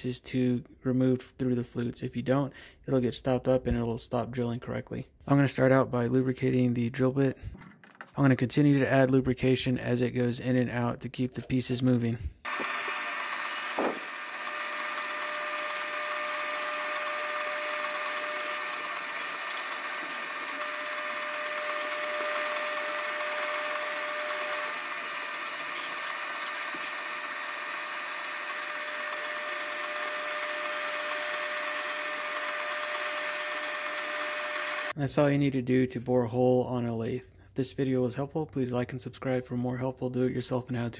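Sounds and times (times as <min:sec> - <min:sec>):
drill boring into metal: 0:12.4 - 0:35.0
metal lathe whining: 0:12.5 - 0:35.0.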